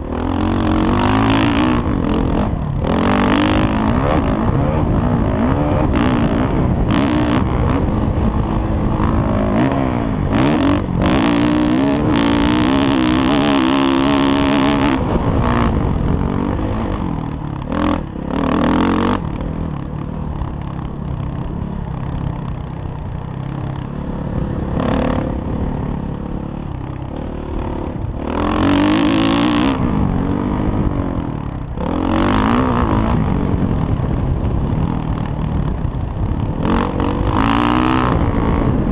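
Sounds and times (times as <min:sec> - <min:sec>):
motocross bike engine revving: 0:00.0 - 0:38.9.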